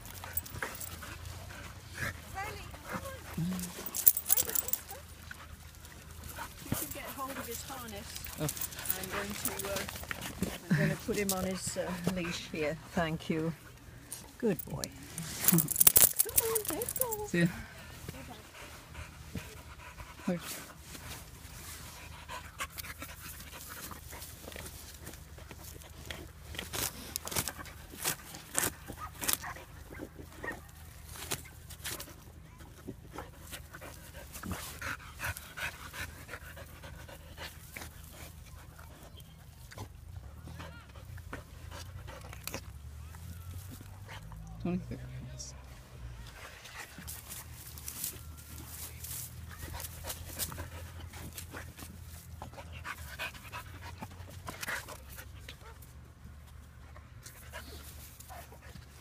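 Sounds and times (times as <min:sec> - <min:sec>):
puppy sniffing and panting: 0:00.0 - 0:59.0
rustles in dry grass: 0:46.2 - 0:52.3.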